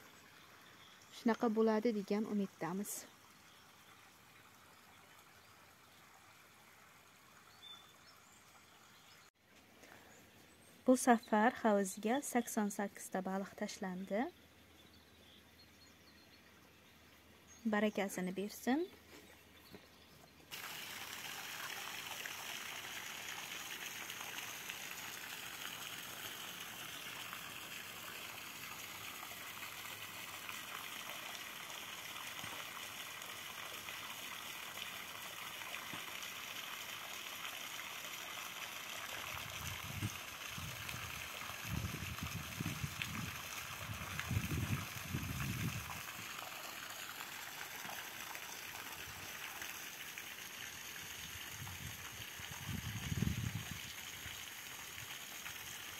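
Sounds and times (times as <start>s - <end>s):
trickle of running water: 0.0s - 10.2s, 20.5s - 55.9s
wind rumbling on microphone: 39.4s - 46.0s, 51.6s - 53.9s.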